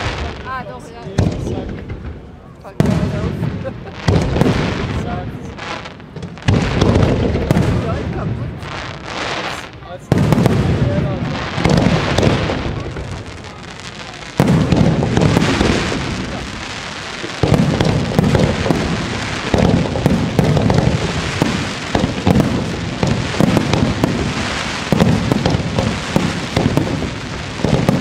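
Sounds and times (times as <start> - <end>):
fireworks booming: 0.0 - 28.0
fireworks crackling: 0.0 - 28.0.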